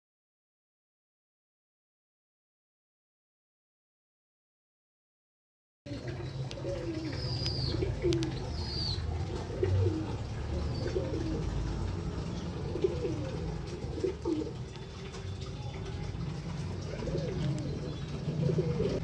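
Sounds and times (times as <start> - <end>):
pigeon cooing: 5.9 - 19.0.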